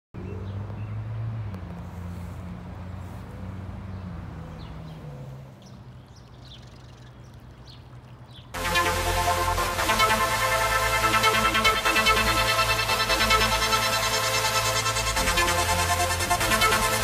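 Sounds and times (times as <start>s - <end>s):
bird chirps: 4.0s - 8.6s
low engine drone: 8.6s - 17.0s.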